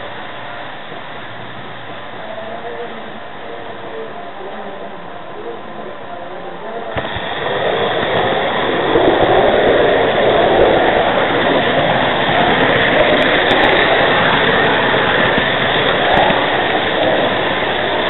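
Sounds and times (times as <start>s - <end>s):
model train wheels rumbling: 6.4s - 18.0s.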